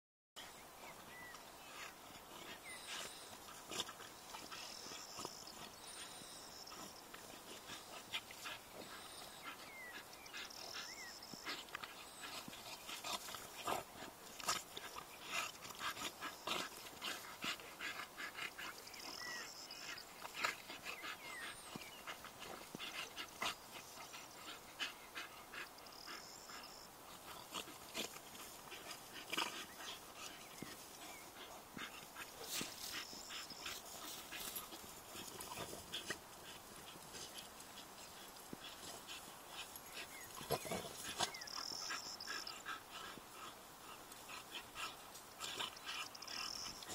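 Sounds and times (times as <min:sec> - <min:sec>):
dog noises: 0:00.4 - 0:46.9
rustling and scuffling in grass: 0:27.0 - 0:46.9.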